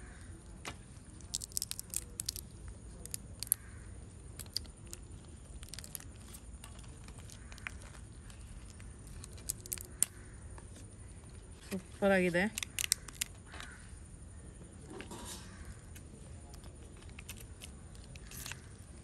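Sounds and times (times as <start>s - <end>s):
shell crackling as peeled: 1.2s - 10.4s, 12.5s - 13.8s, 16.5s - 19.0s.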